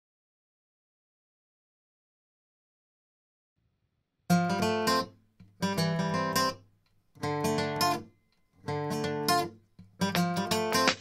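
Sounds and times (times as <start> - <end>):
acoustic guitar strumming chords: 7.2 - 11.0.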